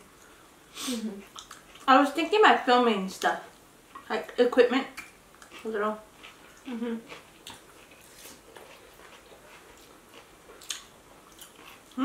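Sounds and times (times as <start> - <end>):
people chewing with wet clicks: 1.2 - 1.9, 4.9 - 12.0
short hummed voice sound: 6.7 - 7.1.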